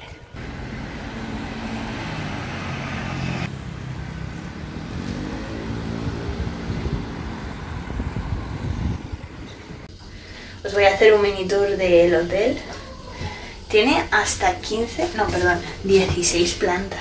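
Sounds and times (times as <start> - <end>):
road traffic passing: 0.0 - 10.1.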